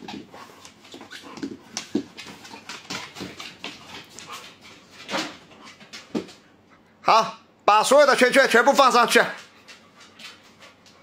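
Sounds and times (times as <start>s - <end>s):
dog claws clicking on floor: 0.0s - 6.4s.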